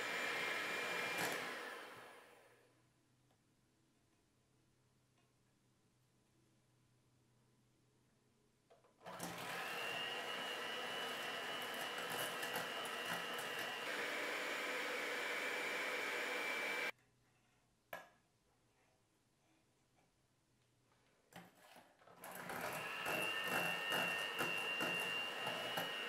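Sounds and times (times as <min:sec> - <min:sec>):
electric hand mixer whining: 0:00.0 - 0:02.5, 0:09.1 - 0:16.9, 0:22.2 - 0:26.0.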